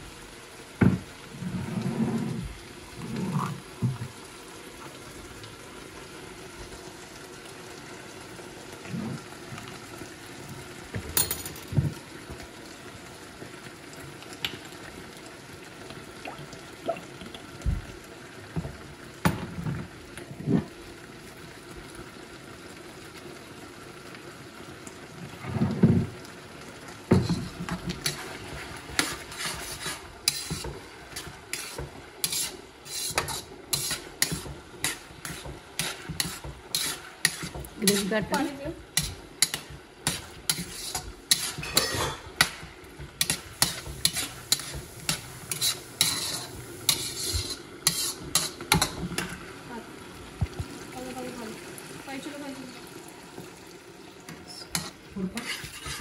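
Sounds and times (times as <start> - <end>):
vegetables sizzling in a wok: 0.0 - 56.0
metal spatula scraping a wok: 27.2 - 38.4, 39.0 - 42.2, 43.2 - 49.0, 54.7 - 56.0.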